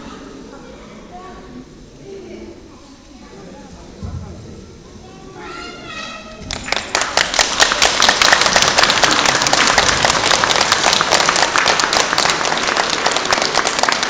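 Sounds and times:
audience applauding: 0:06.5 - 0:14.0.

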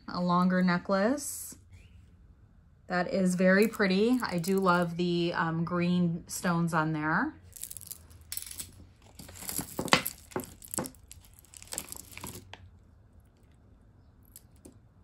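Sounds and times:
packaging crinkling: 0:08.6 - 0:12.7.

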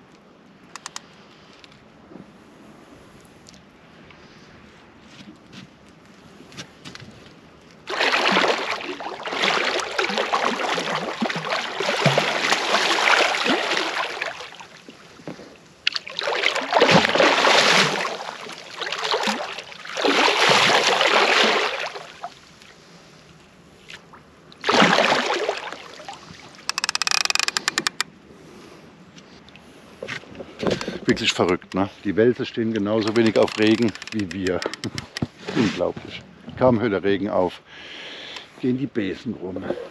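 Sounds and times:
fast rattle of clicks: 0:00.8 - 0:01.0, 0:26.7 - 0:28.1, 0:33.0 - 0:35.3
water sloshing and splashing: 0:07.7 - 0:22.9, 0:23.8 - 0:28.0, 0:32.7 - 0:35.6.

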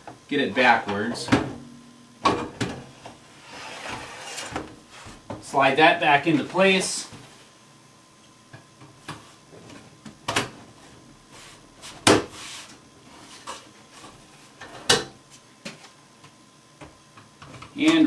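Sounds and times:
knocks and clunks of filter cabinet: 0:00.9 - 0:02.9.

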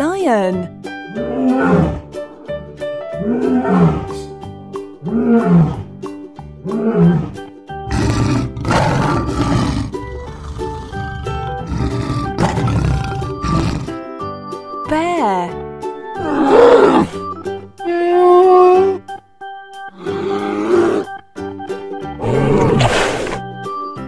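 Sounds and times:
light background music: 0:00.0 - 0:24.0
lion roaring: 0:01.1 - 0:02.1, 0:03.2 - 0:04.2, 0:05.0 - 0:05.9, 0:06.6 - 0:14.0, 0:16.2 - 0:17.2, 0:20.0 - 0:21.2, 0:22.2 - 0:23.4.

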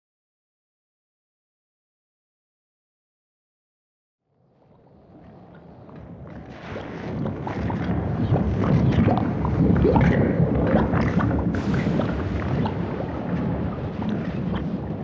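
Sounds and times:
deep rumbling wind-like ambience: 0:04.3 - 0:15.0
crackles and clicks: 0:04.6 - 0:15.0.

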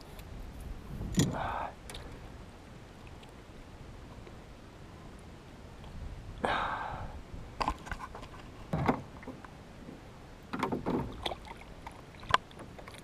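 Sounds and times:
water splashing against boat: 0:07.6 - 0:13.0.

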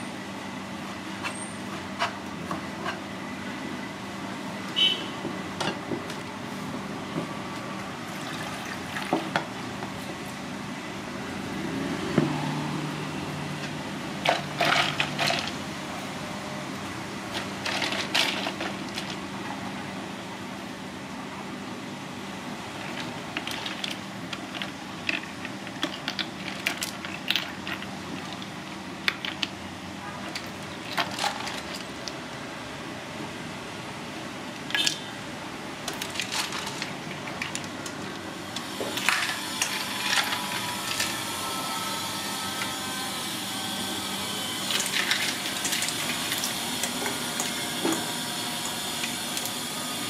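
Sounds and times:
ice and clams clinking in bowl: 0:14.2 - 0:15.6, 0:17.3 - 0:19.2, 0:22.8 - 0:28.4, 0:35.9 - 0:37.8, 0:39.0 - 0:41.1, 0:44.7 - 0:47.6.

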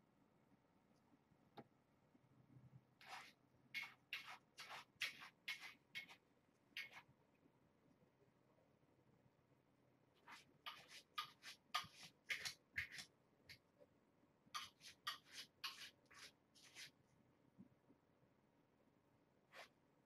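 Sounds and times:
kitten claws scratching blanket: 0:03.0 - 0:06.2.

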